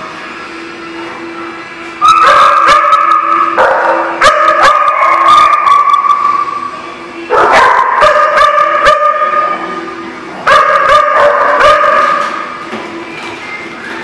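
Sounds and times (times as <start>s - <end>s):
dogs barking and yipping: 2.0s - 6.6s, 7.3s - 9.6s, 10.5s - 12.5s.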